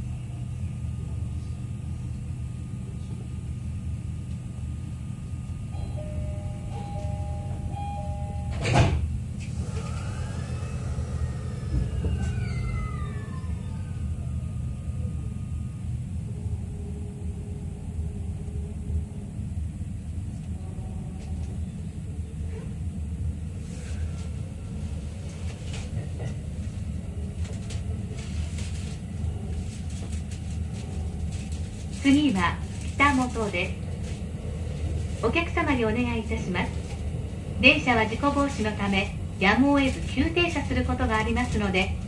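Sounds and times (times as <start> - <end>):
low train running rumble: 0.0 - 42.0
two-tone door chime: 5.8 - 8.8
train doors knocking shut: 8.4 - 9.1
traction motor whine: 9.4 - 15.0.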